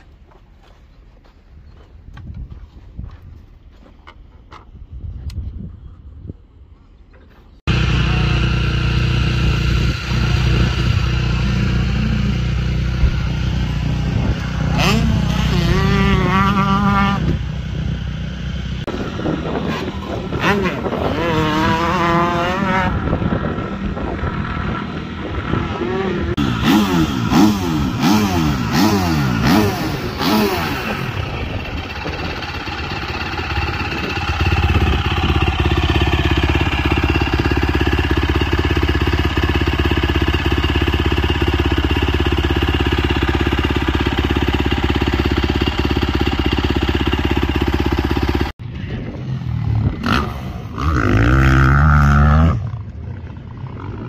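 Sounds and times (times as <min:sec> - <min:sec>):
low engine drone: 0:07.6 - 0:21.1
dirt bike engines revving: 0:07.7 - 0:54.0.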